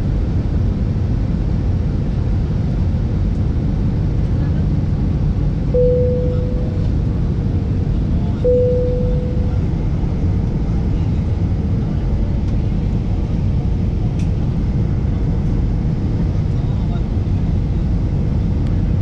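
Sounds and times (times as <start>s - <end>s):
jet engine and airflow rumble: 0.0s - 19.0s
short ringing tones: 5.8s - 6.9s, 8.5s - 9.7s.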